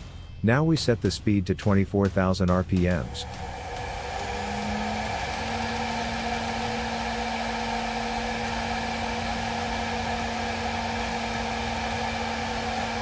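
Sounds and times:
router spindle hum: 2.8s - 13.0s
rushing noise: 2.8s - 13.0s.

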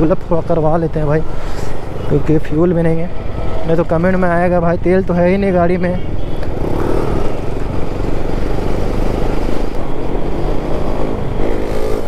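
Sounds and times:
wind and road noise: 0.0s - 12.0s
motorcycle engine accelerating: 6.5s - 12.0s.

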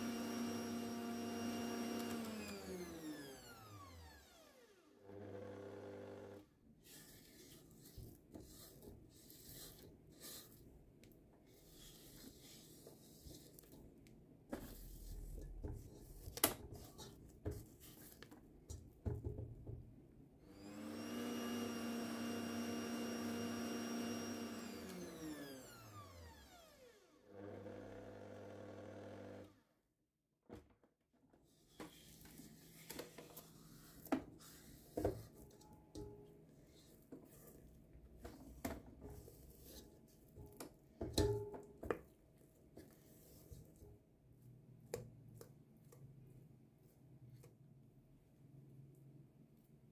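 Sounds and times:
stand mixer motor whining: 0.0s - 6.4s, 20.5s - 29.6s
spatula scraping steel bowl: 6.8s - 10.7s.

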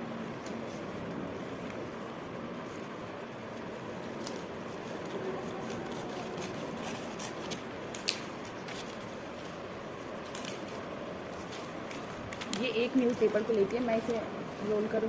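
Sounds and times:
steady background hiss: 0.0s - 15.0s
paper rustling: 2.6s - 14.2s.

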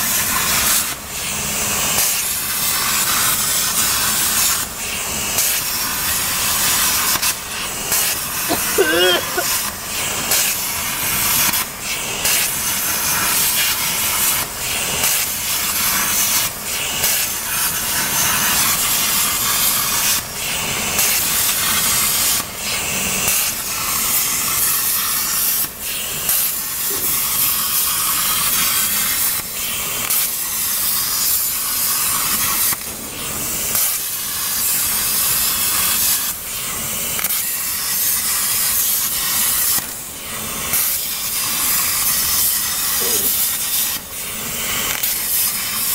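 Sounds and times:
plasma torch arc hissing: 0.0s - 45.9s.

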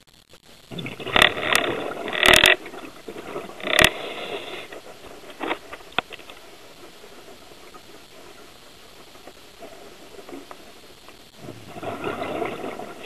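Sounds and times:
underwater bubbles gurgling: 0.6s - 13.0s.

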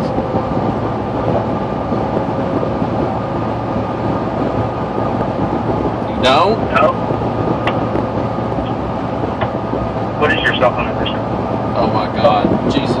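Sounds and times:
car cabin rumble: 0.0s - 13.0s.

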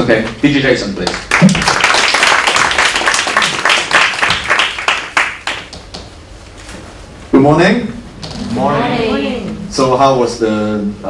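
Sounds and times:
people applauding: 1.0s - 5.8s.

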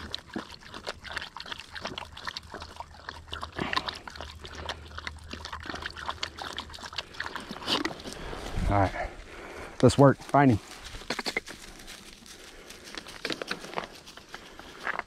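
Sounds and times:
dog lapping water: 0.0s - 8.7s
water trickling from bottle: 0.0s - 9.6s.

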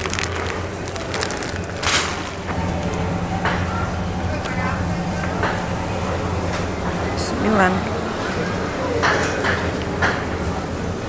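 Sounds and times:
plastic bags crinkling: 0.0s - 3.0s
steady low hum: 0.0s - 11.0s.

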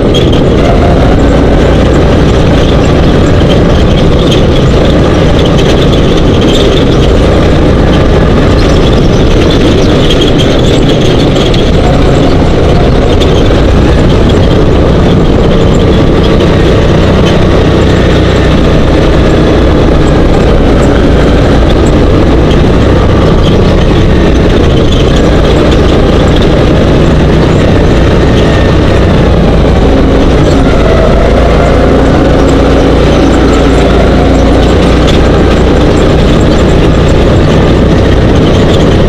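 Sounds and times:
dune buggy engine running: 0.0s - 39.0s.

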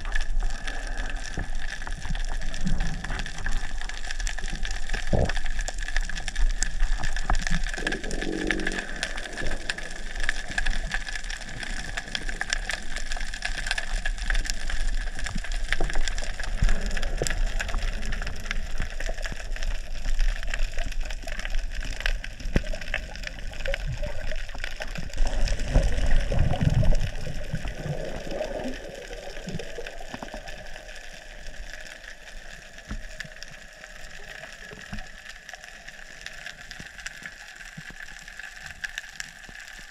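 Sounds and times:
muffled underwater hiss: 0.0s - 39.9s
underwater crackle of clicks: 0.0s - 39.9s
water rushing past camera: 22.7s - 30.8s.

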